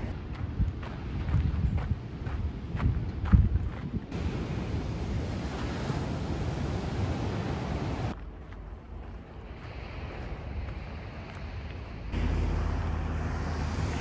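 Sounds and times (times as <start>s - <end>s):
wind: 0.0s - 14.0s
car driving past: 12.2s - 14.0s.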